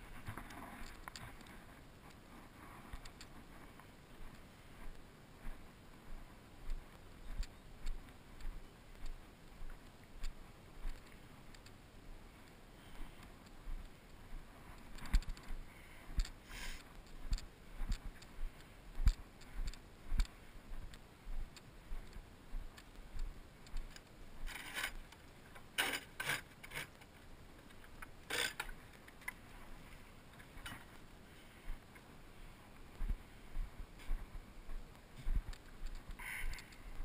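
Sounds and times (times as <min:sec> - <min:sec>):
footsteps dull thumps: 0:32.9 - 0:37.0.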